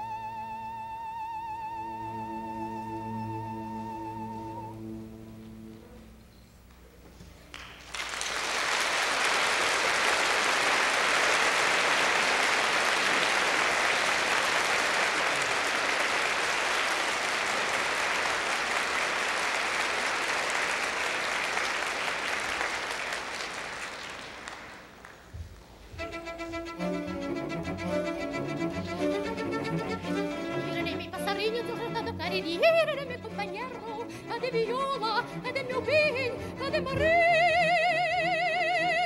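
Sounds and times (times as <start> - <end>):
audience applauding: 7.5 - 25.3.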